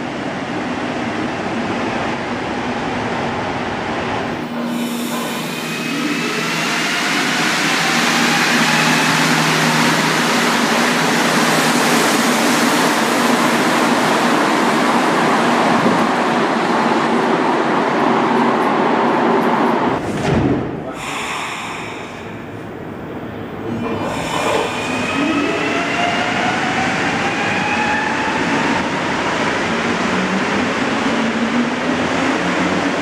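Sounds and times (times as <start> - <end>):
train humming at platform: 0.0 - 33.0.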